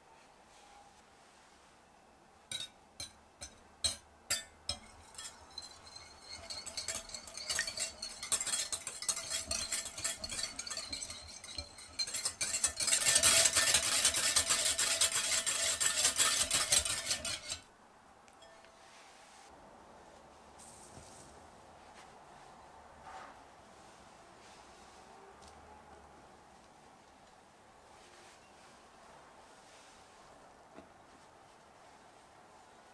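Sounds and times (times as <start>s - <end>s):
whisk beating in glass bowl: 3.8s - 17.6s.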